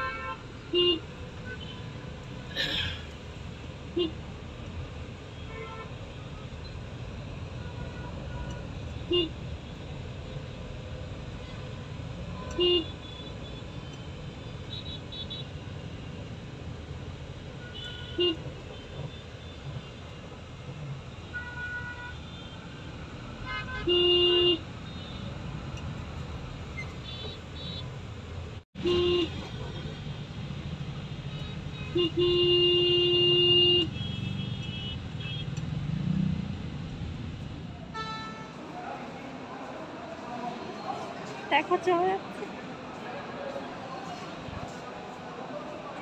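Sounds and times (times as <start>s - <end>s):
traffic engine and road noise: 0.0s - 46.0s
vehicle horns honking: 12.4s - 13.8s, 17.6s - 19.6s, 23.4s - 25.3s, 28.8s - 30.0s, 31.3s - 35.5s, 37.9s - 38.6s.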